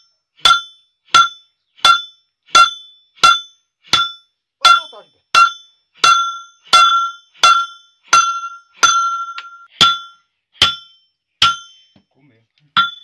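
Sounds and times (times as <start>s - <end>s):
hammer striking steel punch: 0.0s - 12.0s, 12.8s - 13.0s.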